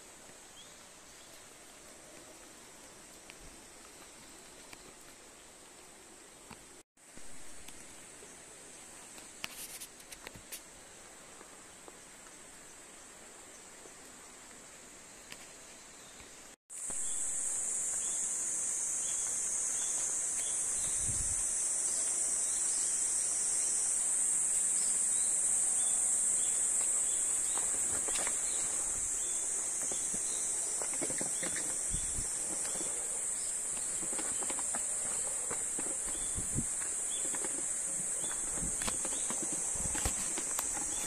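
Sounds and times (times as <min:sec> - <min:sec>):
faint rustles or steps: 0:07.5 - 0:12.0, 0:26.4 - 0:41.0.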